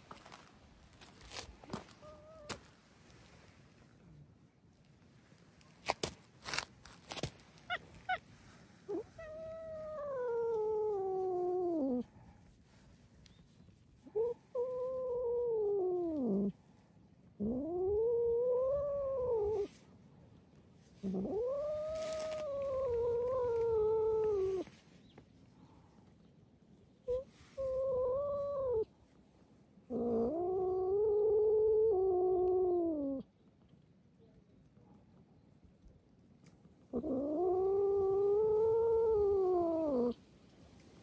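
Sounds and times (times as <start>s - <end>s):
cat meowing: 8.9s - 11.2s.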